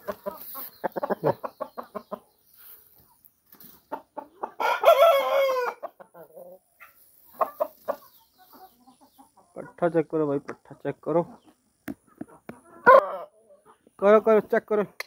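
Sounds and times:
chickens clucking: 0:00.0 - 0:15.0
rooster crowing: 0:04.6 - 0:05.8.

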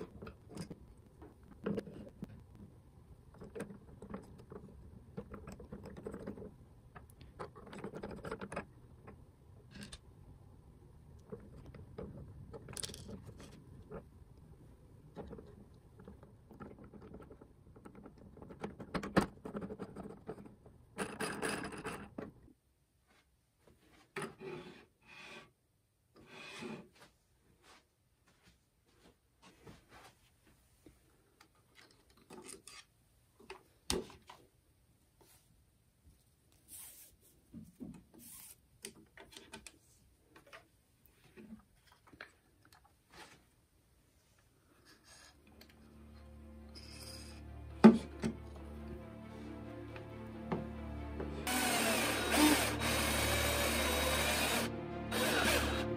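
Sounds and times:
cord rustling and rubbing: 0:36.1 - 0:40.0
plastic gears rubbing and scraping: 0:51.5 - 0:55.8.

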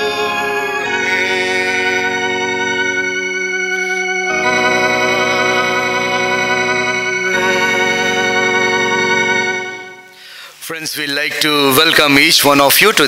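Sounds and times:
organ playing sustained chords: 0:00.0 - 0:10.4.

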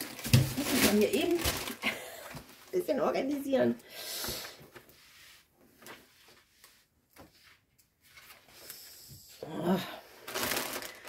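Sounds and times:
plastic bags rustling: 0:00.0 - 0:03.7, 0:09.7 - 0:11.0.

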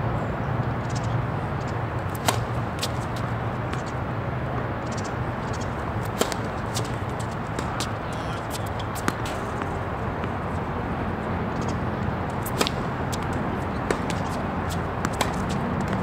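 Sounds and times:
tennis ball being hit: 0:02.0 - 0:04.0, 0:04.8 - 0:10.7, 0:11.6 - 0:16.0.

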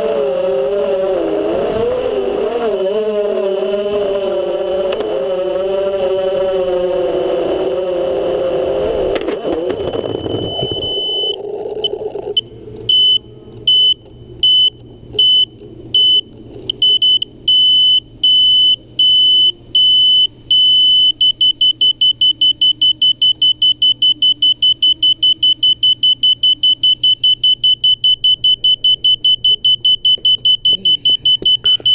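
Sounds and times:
high-pitched electronic beeping: 0:09.9 - 0:31.9.

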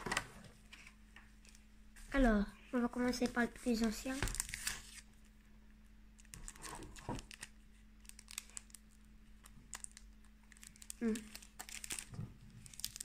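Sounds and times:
foil wrapper crinkling: 0:03.2 - 0:05.1, 0:06.2 - 0:13.0.

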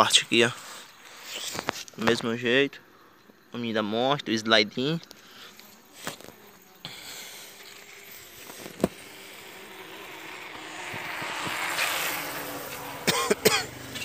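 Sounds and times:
road vehicle passing: 0:06.5 - 0:14.0.

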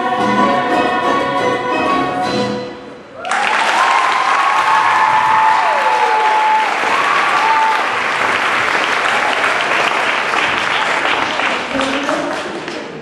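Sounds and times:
choir singing: 0:00.0 - 0:02.5
high whoop: 0:03.2 - 0:08.0
audience applause and cheering: 0:03.2 - 0:12.5.

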